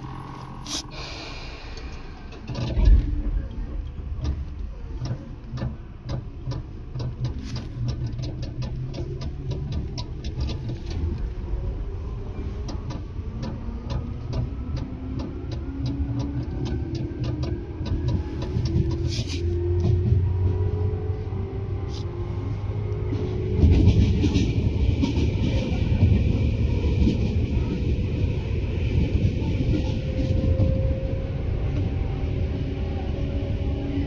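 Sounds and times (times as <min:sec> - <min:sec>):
train motor whine: 0:00.0 - 0:07.2
train rumble with regular clicks: 0:00.0 - 0:34.0
heavy thump: 0:02.4 - 0:06.2.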